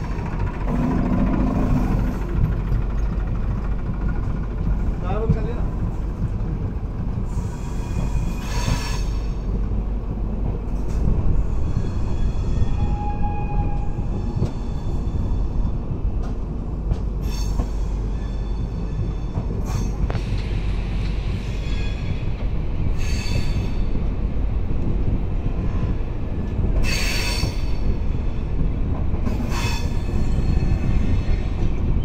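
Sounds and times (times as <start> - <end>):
train wheels rumbling on track: 0.0 - 32.0
metallic wheel squeals: 11.6 - 15.5.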